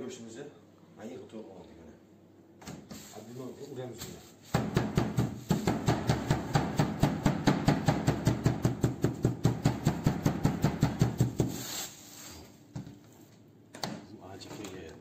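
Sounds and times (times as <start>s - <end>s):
meat mallet pounding meat: 4.5s - 11.6s.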